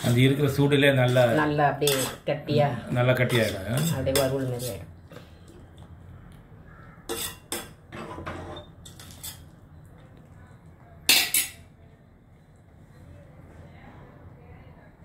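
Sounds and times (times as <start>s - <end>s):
spoon clinking and scraping in pot: 1.0s - 2.3s, 3.2s - 4.8s, 7.0s - 9.6s, 11.1s - 11.7s.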